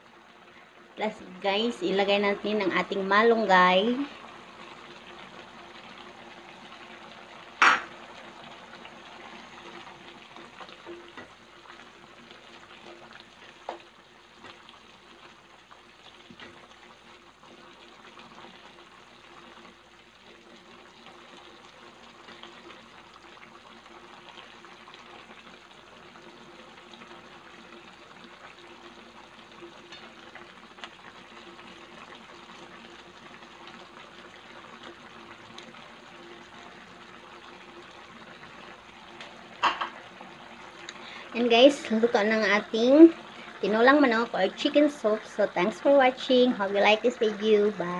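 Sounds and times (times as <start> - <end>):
soup boiling with bubbling hiss: 0.0 - 47.9
sharp knock: 7.6 - 7.9.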